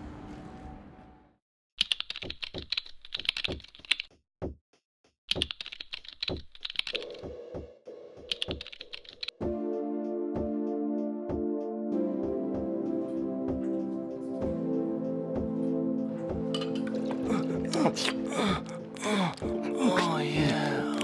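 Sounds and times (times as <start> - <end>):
keyboard key clicks: 5.3 - 7.0
steady low musical tone: 9.5 - 21.0.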